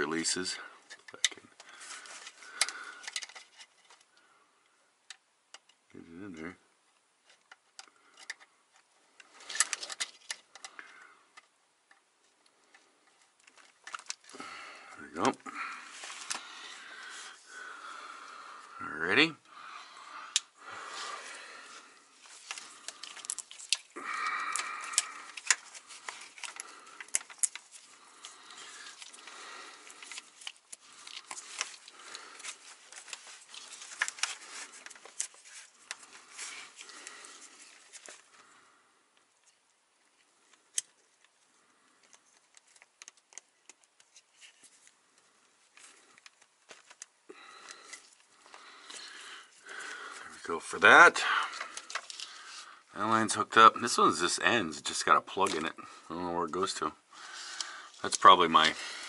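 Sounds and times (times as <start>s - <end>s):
small metallic clicks and rattles: 0.9s - 4.1s, 7.2s - 12.1s, 12.7s - 14.3s, 22.4s - 36.1s.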